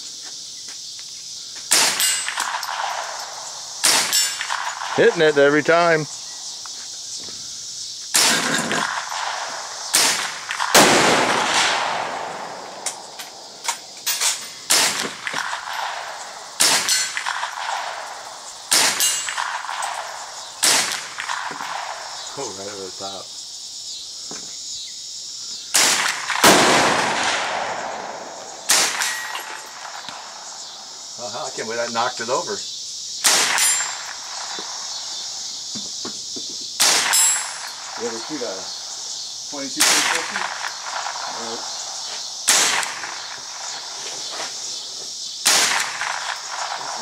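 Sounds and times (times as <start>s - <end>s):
rifle firing single shots: 1.7s - 6.2s, 8.1s - 22.4s, 25.7s - 30.9s, 33.2s - 35.5s, 36.8s - 39.0s, 39.6s - 44.0s, 45.4s - 47.0s.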